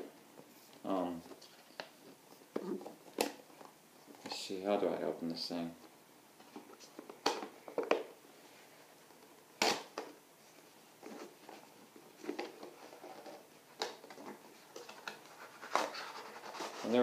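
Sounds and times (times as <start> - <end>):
cardboard packaging rustling: 9.0 - 17.0.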